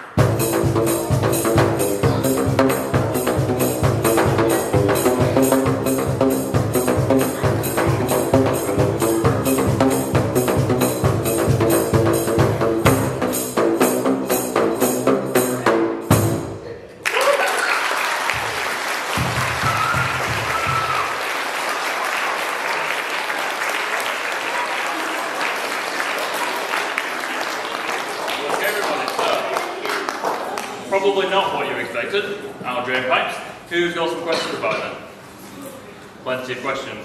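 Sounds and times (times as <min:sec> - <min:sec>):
pipe drum slaps: 0:00.0 - 0:16.5, 0:19.2 - 0:21.1
children applauding: 0:17.0 - 0:30.8
voices among clapping: 0:17.0 - 0:31.0.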